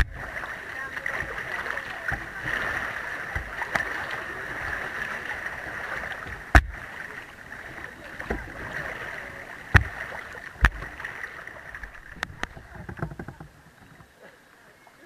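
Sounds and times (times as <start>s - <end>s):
river water rushing and splashing: 0.0s - 15.0s
knocks on kayak: 6.2s - 6.8s, 9.7s - 10.9s, 12.2s - 14.1s.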